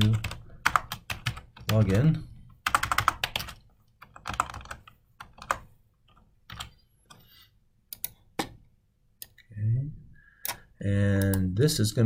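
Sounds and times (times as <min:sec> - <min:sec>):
computer keyboard keystrokes: 0:02.6 - 0:06.8.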